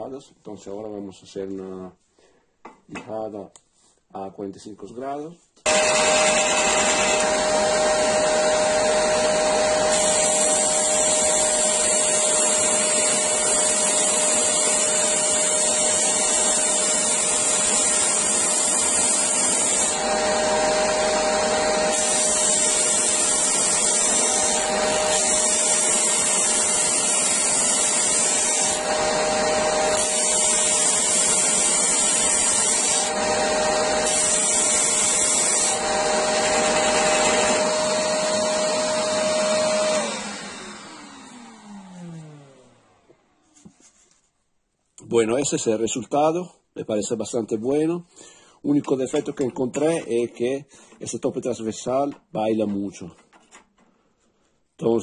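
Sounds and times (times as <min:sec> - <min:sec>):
sander motor running: 0:05.7 - 0:43.4
vacuum extracting dust: 0:05.7 - 0:43.4.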